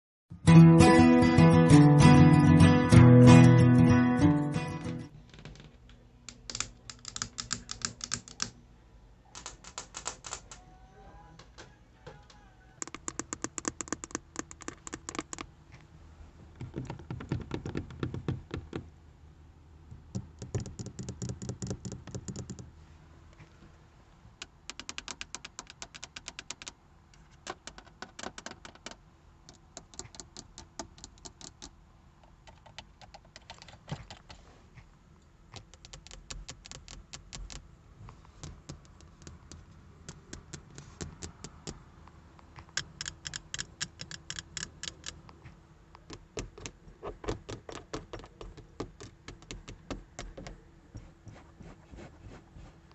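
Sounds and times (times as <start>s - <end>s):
fingernails tapping on plastic: 6.3s - 8.5s, 11.5s - 15.5s, 16.6s - 18.9s, 19.9s - 22.7s, 24.4s - 31.7s, 38.4s - 41.8s, 42.6s - 51.4s.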